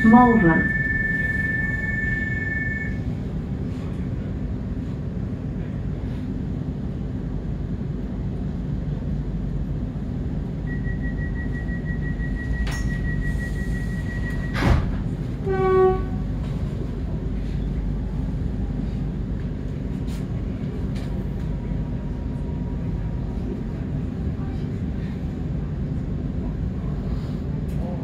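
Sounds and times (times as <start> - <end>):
rapid high beeping: 0.0 - 3.0
short pitched tone: 0.0 - 3.0
electric train low hum: 0.0 - 28.0
train doors thumping shut: 12.4 - 16.6.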